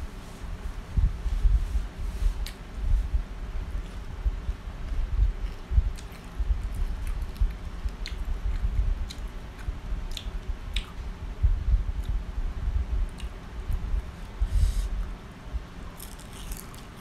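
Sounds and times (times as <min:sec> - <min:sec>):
low uneven rumble: 0:00.0 - 0:16.0
crunchy chewing: 0:04.8 - 0:11.1, 0:15.9 - 0:17.0.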